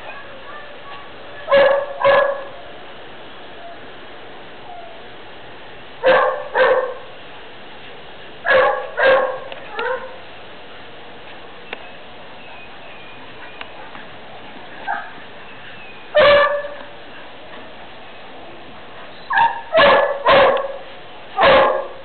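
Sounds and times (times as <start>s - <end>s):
dogs barking: 0.0s - 2.7s, 6.0s - 7.1s, 8.4s - 10.2s, 14.8s - 15.3s, 16.1s - 17.0s, 19.3s - 22.0s.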